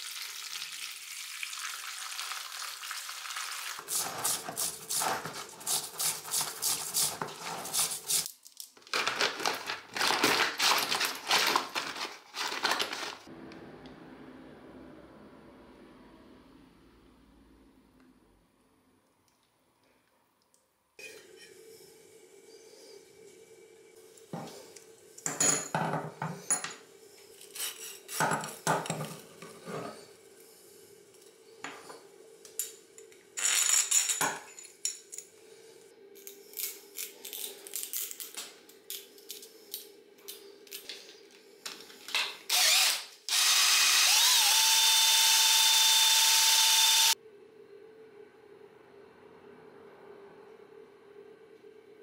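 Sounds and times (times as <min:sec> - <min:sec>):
power drill spinning: 0:42.5 - 0:47.2.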